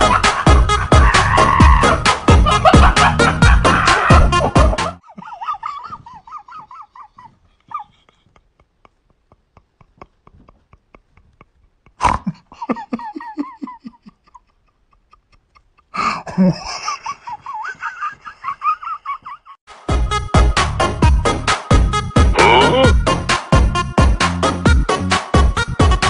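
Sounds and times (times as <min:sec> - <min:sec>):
person laughing loudly: 0:00.0 - 0:19.6, 0:22.4 - 0:23.0.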